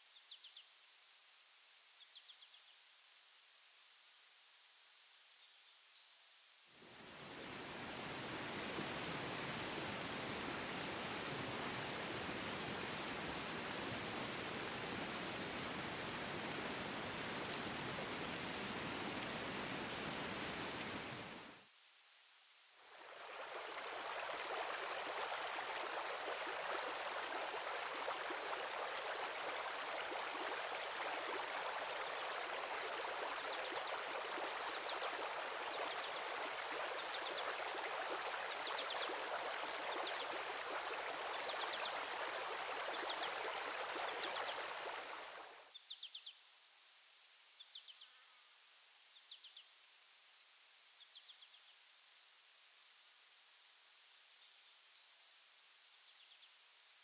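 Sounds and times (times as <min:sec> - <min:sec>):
stream rushing over rocks: 0:07.0 - 0:21.6, 0:22.8 - 0:45.7.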